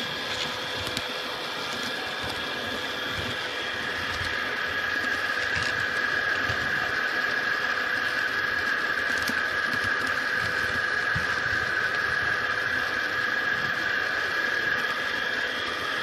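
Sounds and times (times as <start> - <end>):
model train whirring on track: 0.0 - 16.0.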